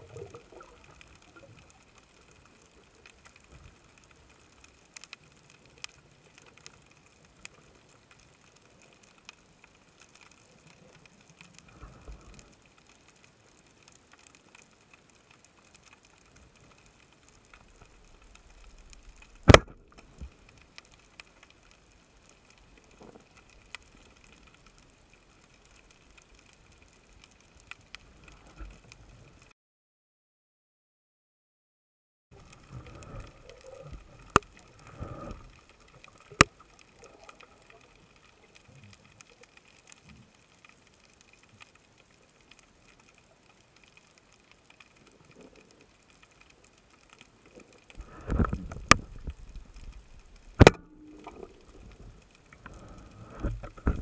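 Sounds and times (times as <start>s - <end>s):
faint underwater clicks: 0.0s - 29.5s, 32.4s - 54.0s
speargun firing underwater: 19.4s - 19.8s, 50.6s - 51.4s.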